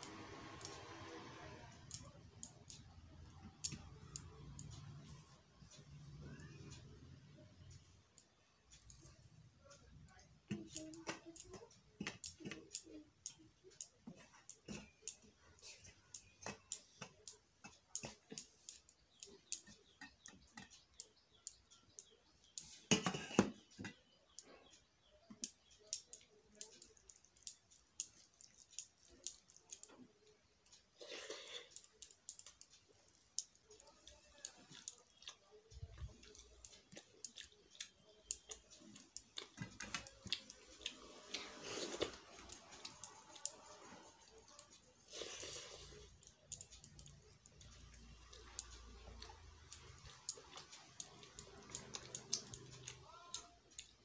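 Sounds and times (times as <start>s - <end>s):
fingers mixing rice on steel plate: 10.0s - 24.6s, 25.3s - 54.0s
chewing: 25.8s - 54.0s.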